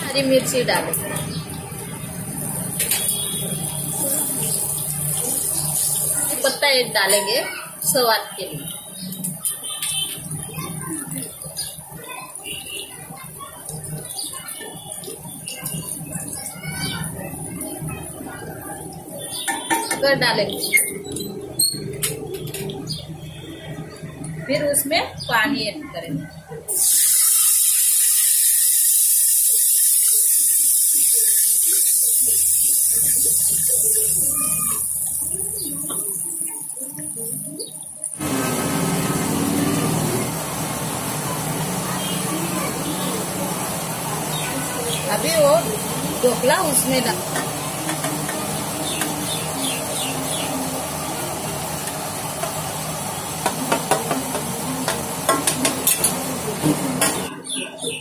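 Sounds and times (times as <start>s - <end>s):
water sizzling in hot oil: 1.7s - 20.4s, 26.7s - 57.3s
sizzling hiss: 26.7s - 39.0s.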